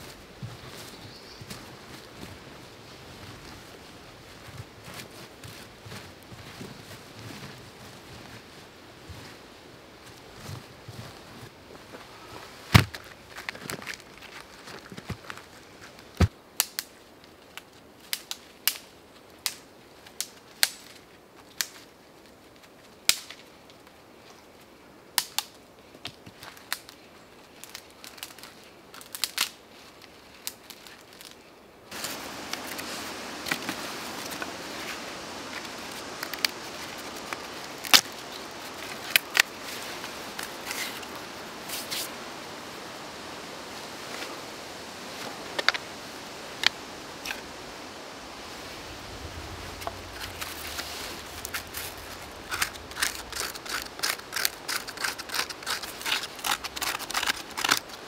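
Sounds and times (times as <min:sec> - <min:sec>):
hatchet splitting firewood: 0:50.1 - 0:58.0.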